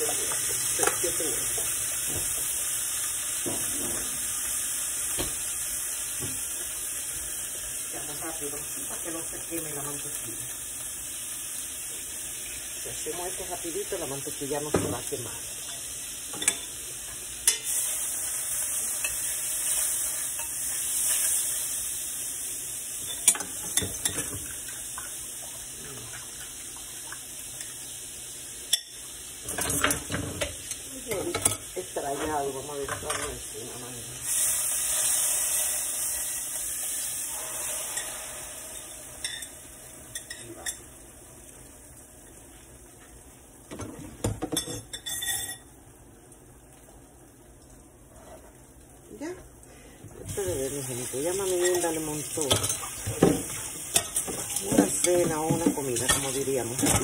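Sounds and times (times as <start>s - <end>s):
butter sizzling in frying pan: 0.0s - 57.0s
spoon and bowl clinking on pan: 15.7s - 16.7s, 17.4s - 17.7s, 23.0s - 24.4s, 38.8s - 40.9s, 44.4s - 45.7s.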